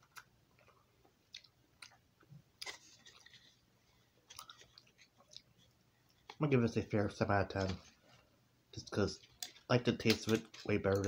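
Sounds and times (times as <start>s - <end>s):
person chewing gum: 0.0s - 6.4s.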